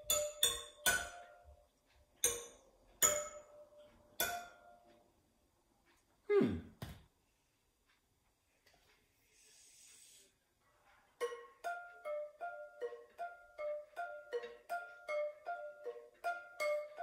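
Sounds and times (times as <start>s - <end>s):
metal rod striking bicycle spokes: 0.0s - 1.5s, 2.2s - 5.0s.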